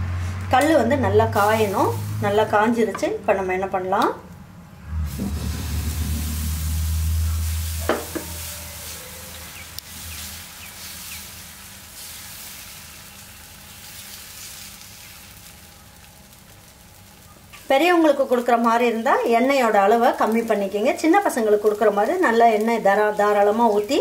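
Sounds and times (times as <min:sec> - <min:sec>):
low rumble: 0:00.0 - 0:10.5
batter sizzling on a hot pan: 0:01.3 - 0:02.3, 0:05.1 - 0:24.0.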